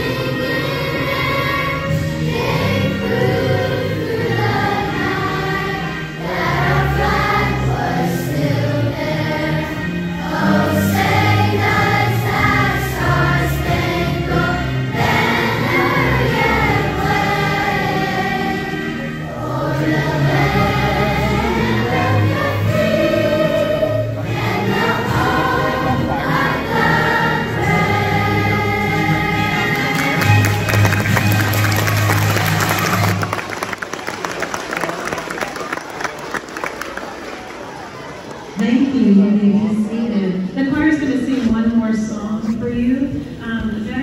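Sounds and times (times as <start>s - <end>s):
children's choir singing: 0.0s - 31.3s.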